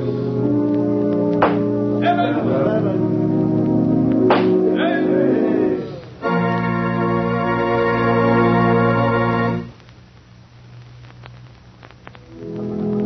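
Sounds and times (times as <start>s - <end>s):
music: 0.0s - 9.8s, 11.8s - 13.0s
organ chord: 0.0s - 9.8s, 12.3s - 13.0s
faint clicks: 9.8s - 13.0s.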